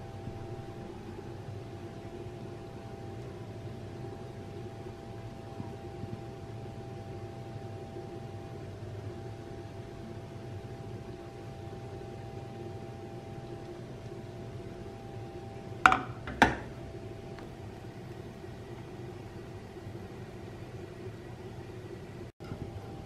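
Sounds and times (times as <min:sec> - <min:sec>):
steady hum: 0:00.0 - 0:23.0
frying pan knocking on metal grate: 0:15.8 - 0:16.8.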